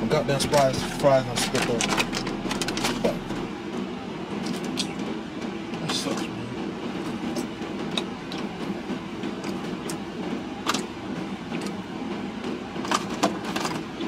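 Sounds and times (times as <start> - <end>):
car engine and air conditioning hum: 0.0 - 14.0
food wrappers crinkling: 1.3 - 3.2.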